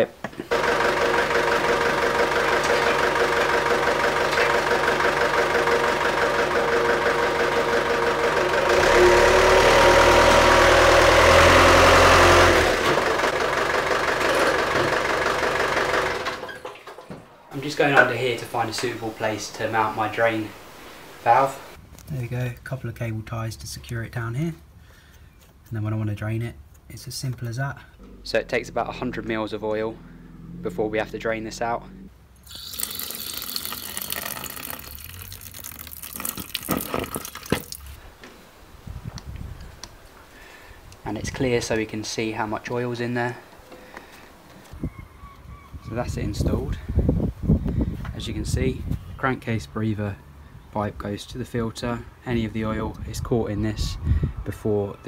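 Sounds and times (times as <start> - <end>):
van diesel engine: 0.0 - 21.8, 27.6 - 32.4
liquid pouring through hose: 32.4 - 38.0.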